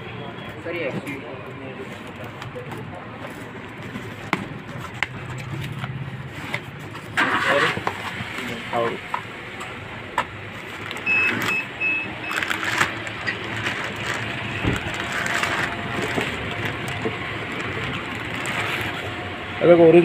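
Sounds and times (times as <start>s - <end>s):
plastic bag crinkling: 12.2s - 19.3s
cardboard box rustling: 12.3s - 19.2s.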